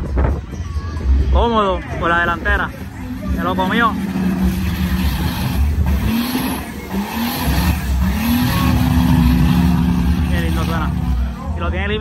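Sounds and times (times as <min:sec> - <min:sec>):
low exhaust rumble: 0:00.0 - 0:12.0
engine revving: 0:02.6 - 0:11.6.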